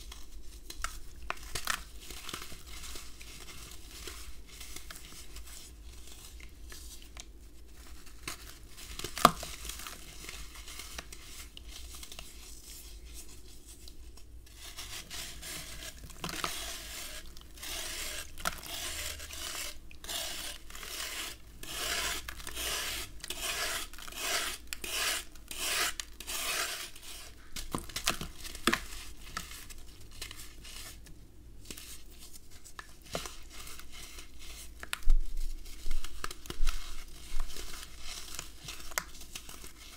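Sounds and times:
knife scraping sand block: 0:14.6 - 0:27.4.

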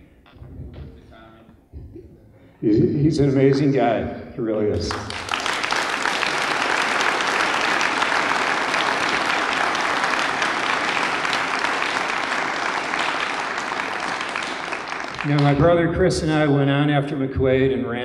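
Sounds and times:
audience applauding: 0:04.9 - 0:16.4.

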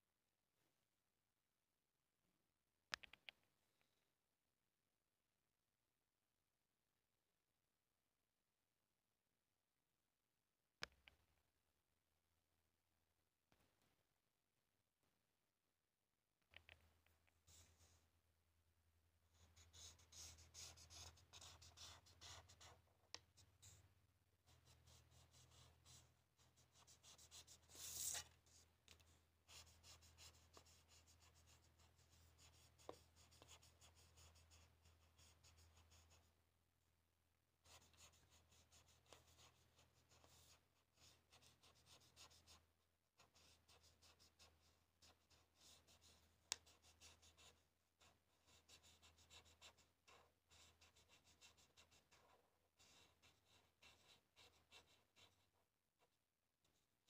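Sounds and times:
marker pen scratching on paper: 0:17.3 - 0:18.0, 0:19.4 - 0:23.9, 0:24.5 - 0:36.3, 0:37.6 - 0:42.6, 0:43.2 - 0:56.8.

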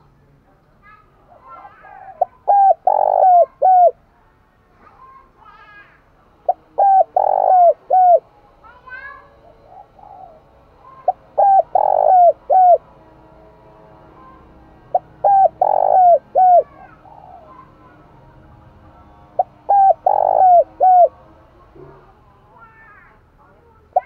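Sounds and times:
dove cooing: 0:01.3 - 0:04.0, 0:06.4 - 0:08.3, 0:09.4 - 0:13.0, 0:14.2 - 0:17.9, 0:19.1 - 0:21.2.

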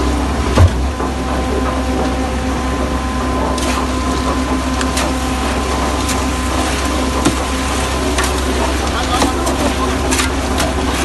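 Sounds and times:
engines droning: 0:00.0 - 0:11.0
wet concrete sliding: 0:04.8 - 0:11.0.

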